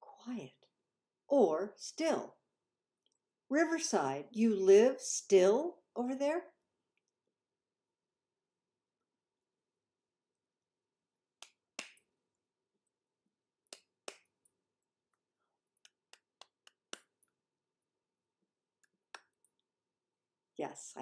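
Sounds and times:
fingers clicking and tapping: 15.8 - 17.3.

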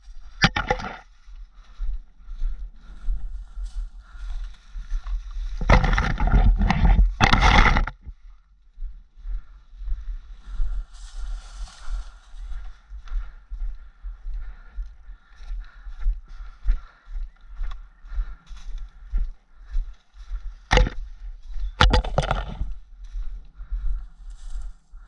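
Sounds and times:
branches scraping microphone: 4.9 - 8.1, 21.7 - 22.8
soft rustling of leaves: 10.7 - 12.7
footsteps on leaf litter: 10.9 - 12.4.

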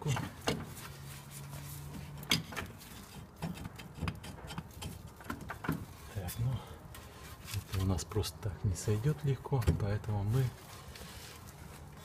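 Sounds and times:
metal knocks and clicks: 2.2 - 5.9.

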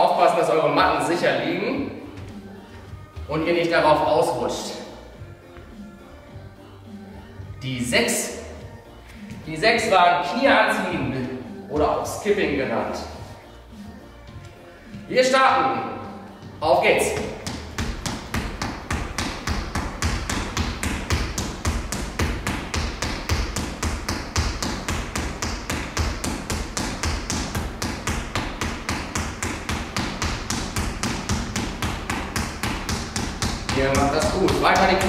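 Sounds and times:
footsteps on wooden floor: 2.0 - 3.5, 8.6 - 9.5, 14.2 - 15.1, 16.1 - 35.0.

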